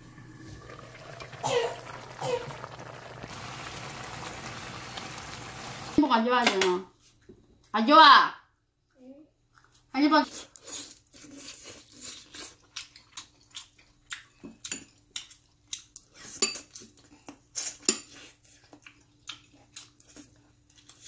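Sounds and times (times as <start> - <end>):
man chewing food: 9.4 - 21.0.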